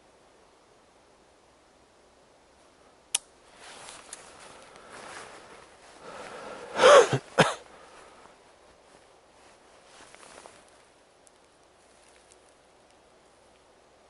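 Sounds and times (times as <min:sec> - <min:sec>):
rustling through tall grass: 0:03.4 - 0:14.0
person sneezing loudly: 0:06.7 - 0:07.6.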